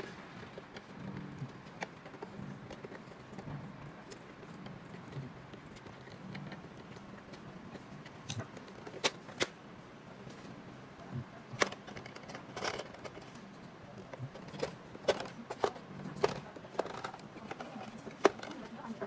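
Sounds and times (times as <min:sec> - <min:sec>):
low steady hum: 0:00.0 - 0:19.0
plastic clicks and knocks: 0:11.5 - 0:18.8.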